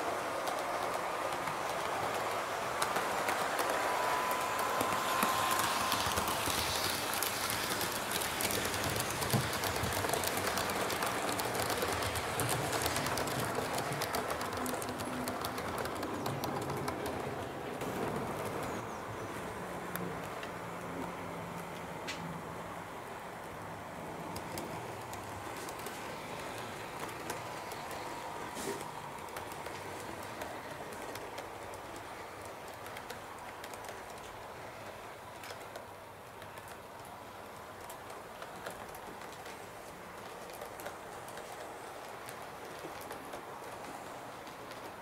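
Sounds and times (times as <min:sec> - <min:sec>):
model train wheels clicking on rails: 0:00.0 - 0:45.0
model train motor whirring: 0:00.5 - 0:14.5.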